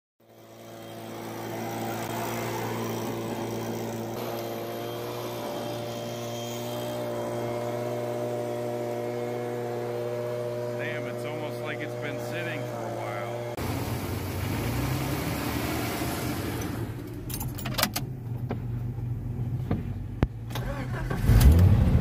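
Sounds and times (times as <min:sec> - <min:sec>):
leaf blower running: 0:00.2 - 0:17.0.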